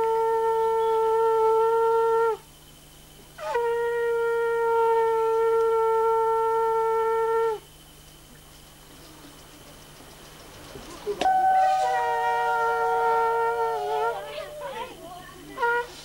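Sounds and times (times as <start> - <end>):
conch shell blasts: 0.0 - 2.4, 3.4 - 7.7, 11.2 - 14.8, 15.5 - 16.0.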